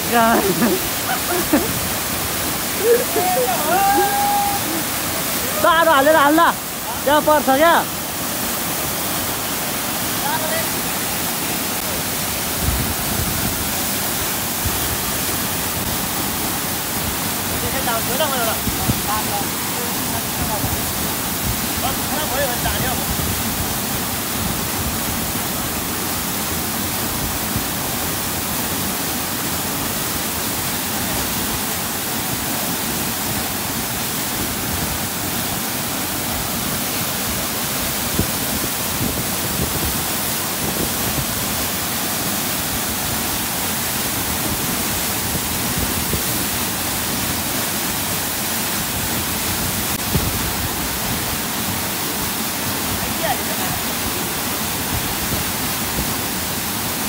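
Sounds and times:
mountain stream rushing: 0.0 - 57.0.

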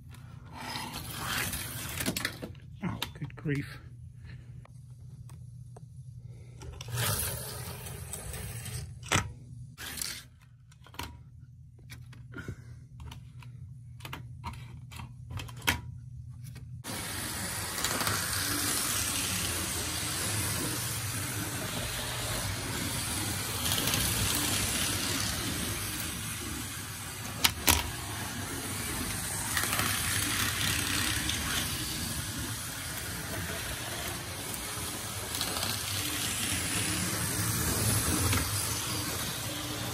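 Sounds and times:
slot car motor whirring: 6.9 - 9.0, 16.8 - 39.9.

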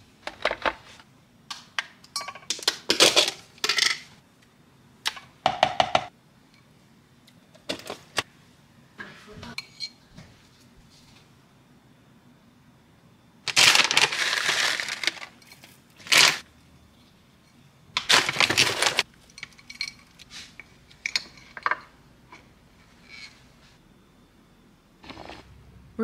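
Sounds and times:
food bags crinkling: 13.5 - 15.4, 16.0 - 16.4, 18.0 - 19.1.

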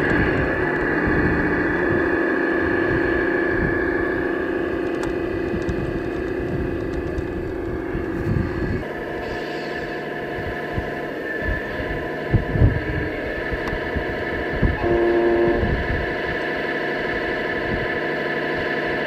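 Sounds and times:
low rumble over dirt: 0.0 - 9.0
electric toy truck whine: 0.0 - 19.0.

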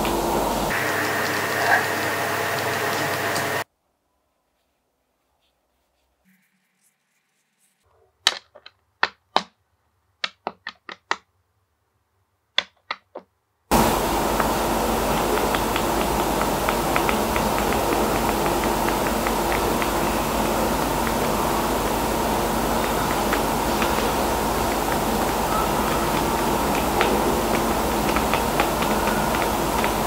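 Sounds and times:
flipbook pages whirring: 0.0 - 3.7, 13.7 - 30.0.

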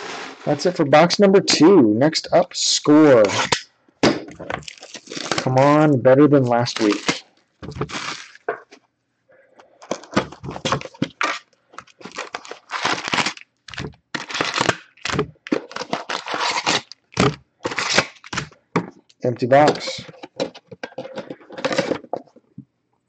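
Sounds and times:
cardboard tearing: 4.6 - 5.6, 6.6 - 8.5, 9.9 - 18.5
wrapped packs rustling: 4.6 - 5.6, 6.6 - 8.5, 9.8 - 18.4.

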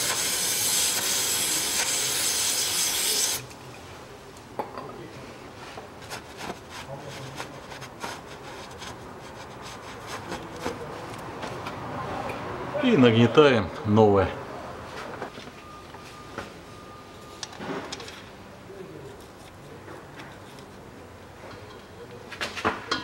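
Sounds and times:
gloved hand rubbing metal: 6.0 - 10.8.

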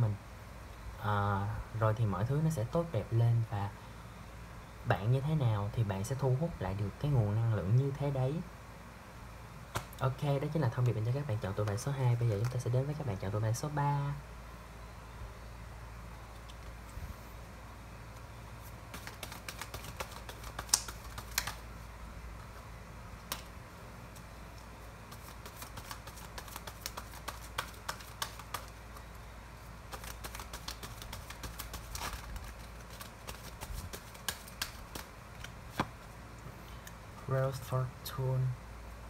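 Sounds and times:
cards being shuffled: 11.6 - 13.0, 18.1 - 21.7, 23.2 - 36.2.

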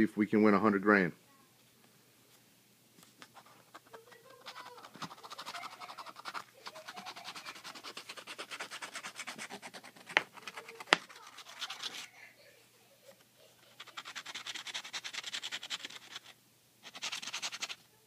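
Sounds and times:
scratching lottery ticket: 3.2 - 12.1, 13.6 - 17.8.

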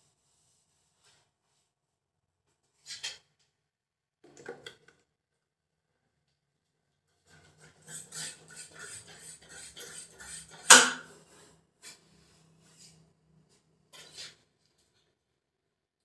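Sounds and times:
marker scratching on whiteboard: 7.6 - 10.8.

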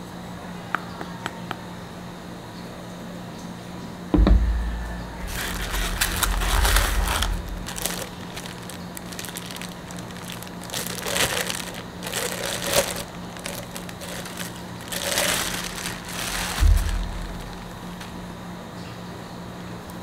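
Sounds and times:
foam rubbing and creaking: 5.2 - 17.8
plastic bag crinkling: 5.2 - 18.2.

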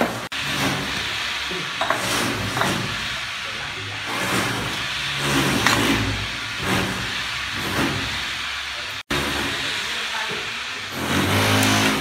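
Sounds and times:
trowel scraping mortar: 4.1 - 8.0, 10.9 - 12.0.

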